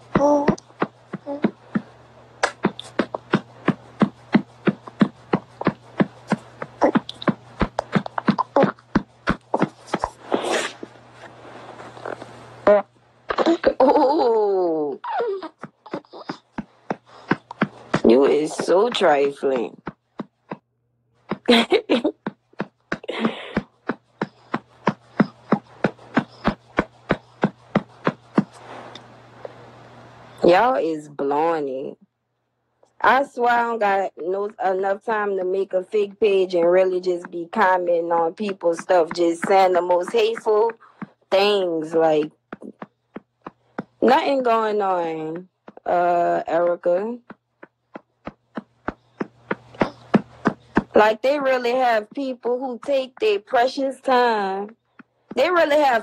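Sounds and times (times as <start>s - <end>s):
breathy rush: 15.0s - 19.0s, 22.6s - 30.2s.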